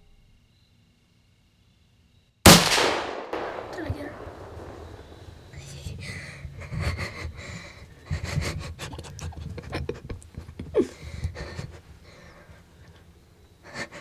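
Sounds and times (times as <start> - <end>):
person breathing hard and fast: 6.0 - 12.8, 13.6 - 14.0.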